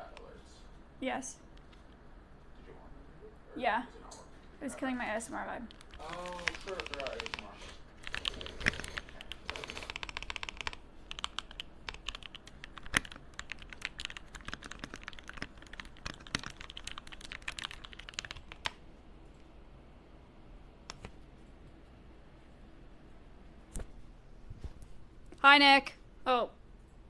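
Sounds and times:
computer keyboard typing: 0:05.6 - 0:18.8.

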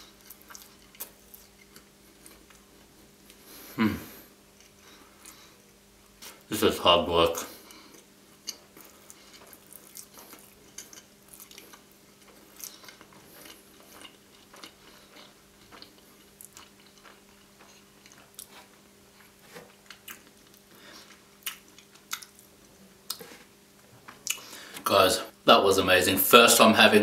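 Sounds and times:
mouth chewing food: 0:00.0 - 0:03.4, 0:07.6 - 0:23.5.

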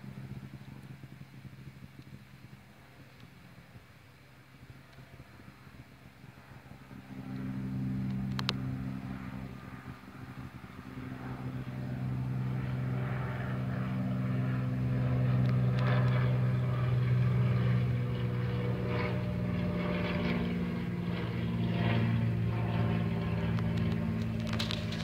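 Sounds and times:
low engine drone: 0:00.0 - 0:25.0.

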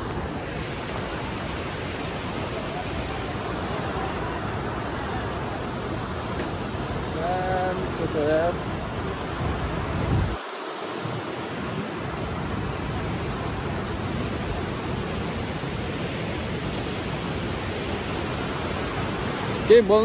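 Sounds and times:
wind rumble on microphone: 0:00.0 - 0:19.7
ocean surf breaking: 0:00.0 - 0:20.0.

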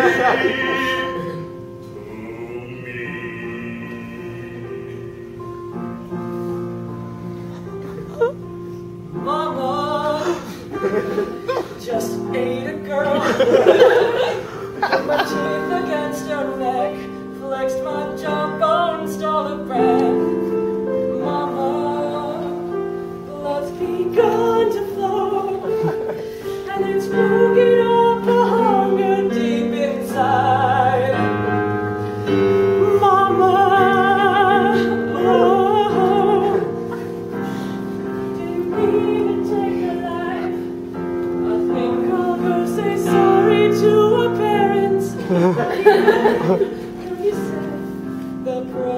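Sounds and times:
operatic solo singing: 0:00.0 - 0:05.5
held accompaniment chords: 0:00.0 - 0:48.9.

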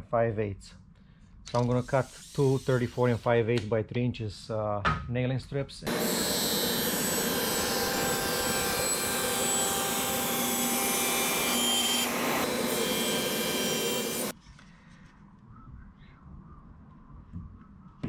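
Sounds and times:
panel saw cutting plywood: 0:05.9 - 0:14.3.

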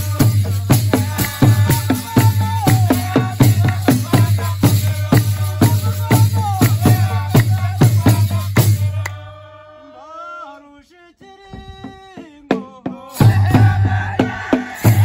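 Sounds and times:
shaker: 0:00.0 - 0:09.0
fast drumming: 0:00.0 - 0:09.1, 0:11.5 - 0:15.0
person singing: 0:00.0 - 0:15.0.

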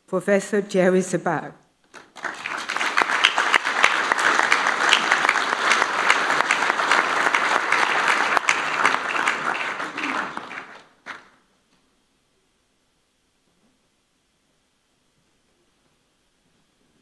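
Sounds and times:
audience applauding: 0:01.9 - 0:11.4.

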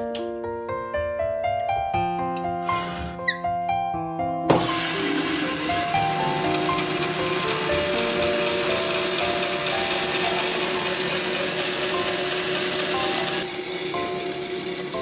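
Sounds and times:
background music: 0:00.0 - 0:15.0
bandsaw cutting wood: 0:04.5 - 0:15.0.

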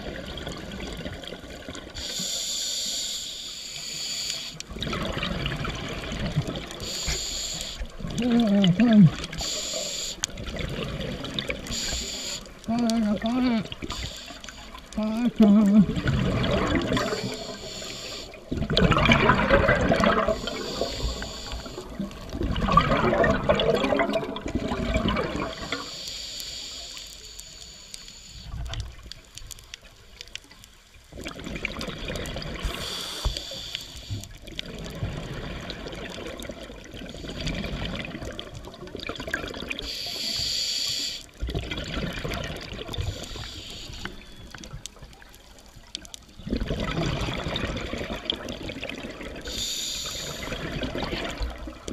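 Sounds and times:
exhaled bubbles gushing: 0:00.0 - 0:02.0, 0:04.6 - 0:07.0, 0:07.9 - 0:09.6, 0:10.2 - 0:12.0, 0:12.6 - 0:25.8, 0:31.1 - 0:33.0, 0:34.4 - 0:39.9, 0:41.4 - 0:51.9
diver inhaling through regulator: 0:06.8 - 0:07.9, 0:11.6 - 0:12.5, 0:17.0 - 0:18.4, 0:20.2 - 0:22.0, 0:32.6 - 0:34.3, 0:39.8 - 0:41.3, 0:49.5 - 0:50.8.

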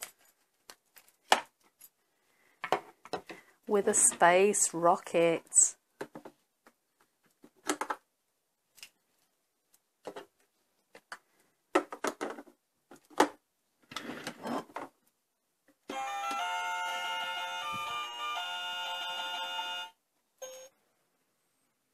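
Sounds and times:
electronic toy tune: 0:15.9 - 0:20.7.

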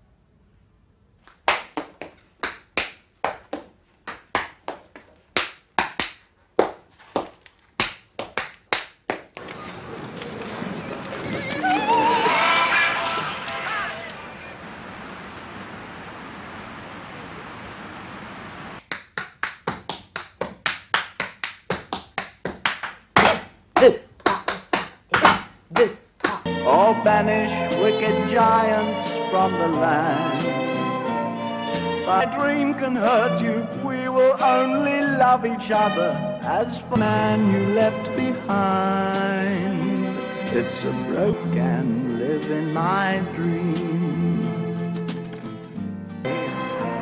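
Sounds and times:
hard-soled shoes tapping on board: 0:01.5 - 0:09.5, 0:18.8 - 0:23.5, 0:24.2 - 0:26.5
steady hiss: 0:14.1 - 0:18.8.

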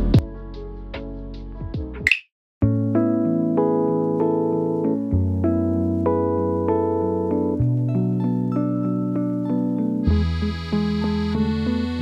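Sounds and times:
lofi music: 0:01.8 - 0:12.0
electric piano chords: 0:02.6 - 0:10.1.

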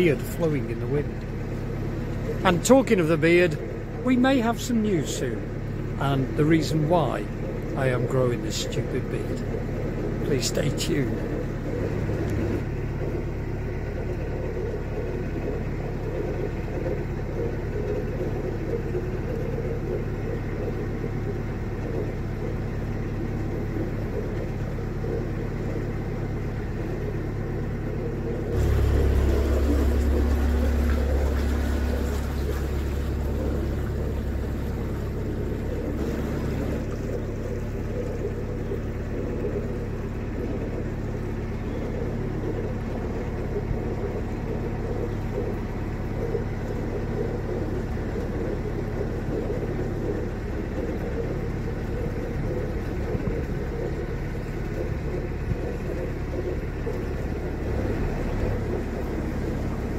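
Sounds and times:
boat diesel engine rumble: 0:00.0 - 0:59.9.

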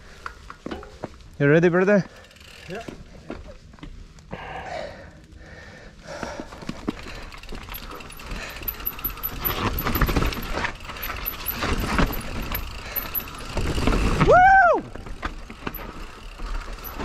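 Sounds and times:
wind: 0:00.0 - 0:17.0
bicycle freehub ratchet ticking: 0:02.0 - 0:03.0, 0:06.9 - 0:14.2, 0:15.1 - 0:17.0
rumble of tyres: 0:02.0 - 0:17.0
bike clattering over roots: 0:06.2 - 0:17.0.

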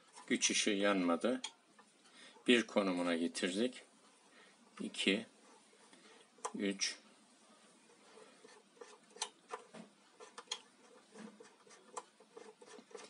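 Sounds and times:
light rubbing of plastic: 0:00.0 - 0:00.7, 0:07.7 - 0:13.0.

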